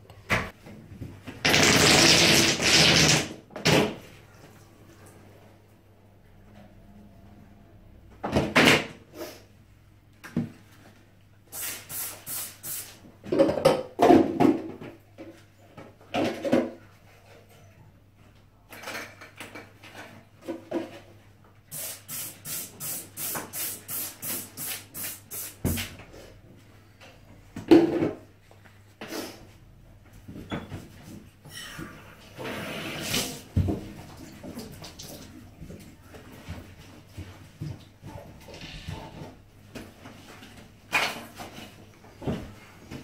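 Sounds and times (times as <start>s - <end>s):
spray bottle hissing bursts: 11.5s - 13.0s, 21.7s - 25.8s.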